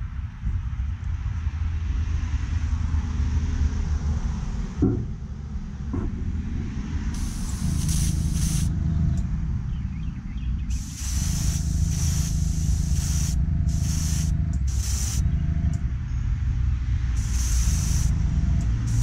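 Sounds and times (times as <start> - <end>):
airbrush hissing air bursts: 7.2 - 8.7, 10.7 - 15.3, 17.2 - 19.0
air compressor humming: 7.2 - 8.8, 10.7 - 15.8, 17.1 - 19.0.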